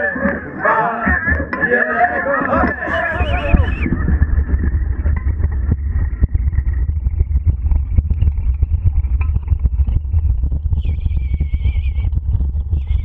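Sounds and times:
wheels rumbling over grass: 0.0s - 13.0s
wind on microphone: 0.0s - 13.0s
rig rattling and clicking: 3.5s - 13.0s.

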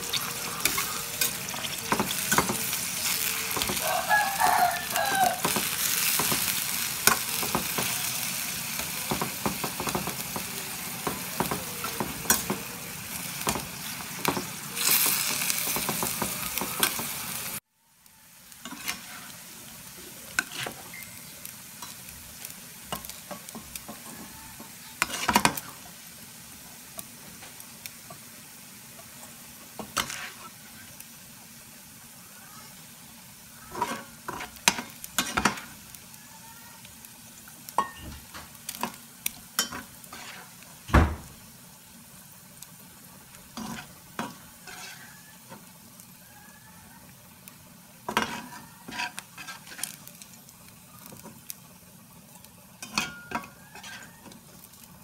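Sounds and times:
chicken sizzling in a pan: 0.0s - 55.0s
metal spatula scraping a pan: 0.1s - 3.8s, 18.6s - 19.4s, 20.3s - 21.0s, 23.7s - 25.8s, 29.8s - 30.9s, 33.7s - 35.7s, 39.6s - 40.6s, 43.5s - 45.3s, 48.1s - 50.0s, 52.8s - 54.4s.

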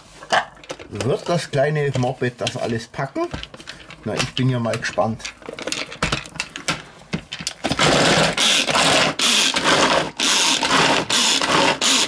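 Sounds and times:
pull cord chopper whirring: 7.6s - 12.0s.

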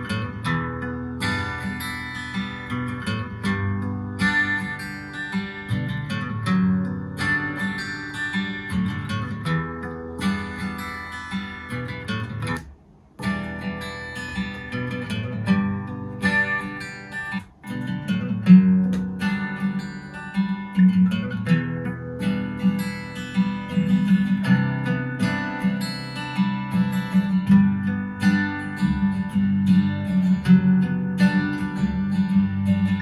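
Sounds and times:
acoustic guitar ballad: 0.0s - 33.0s.

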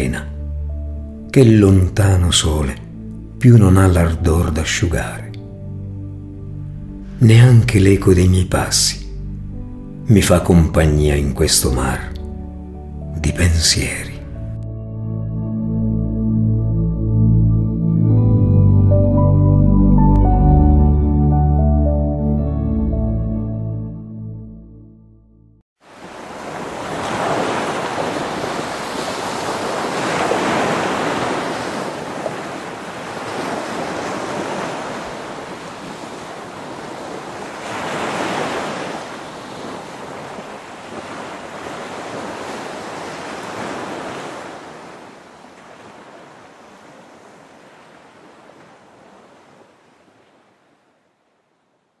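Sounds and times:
sea surf washing onto beach: 25.8s - 51.2s.

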